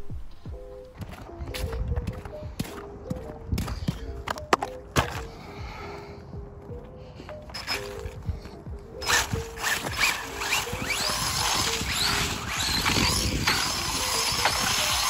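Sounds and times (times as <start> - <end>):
faint background music: 0.0 - 15.0
electric motor whining: 7.5 - 15.0.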